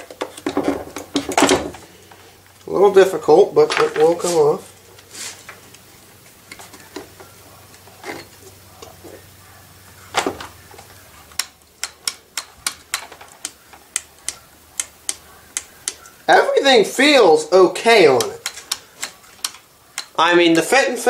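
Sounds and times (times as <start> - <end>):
sharp plastic clicks: 11.3 - 16.2, 17.9 - 20.7.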